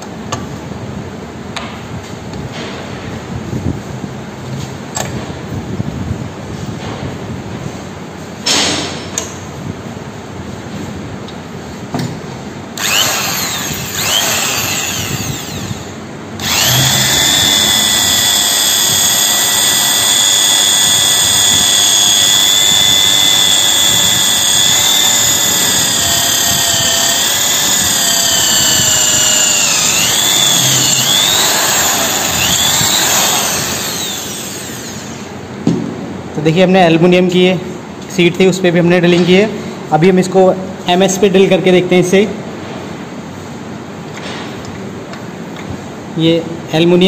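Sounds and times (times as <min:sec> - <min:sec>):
electric drill boring aluminium: 0:12.8 - 0:35.4.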